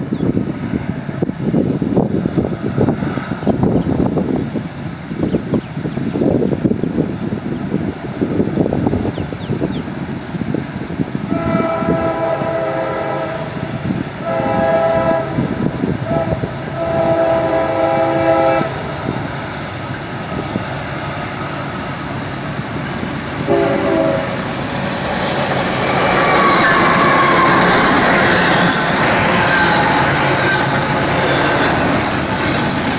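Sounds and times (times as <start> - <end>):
locomotive rumble: 0.0 - 32.9
wind on microphone: 0.0 - 32.9
train air horn blasts: 11.2 - 18.9, 23.4 - 24.7, 25.8 - 32.9.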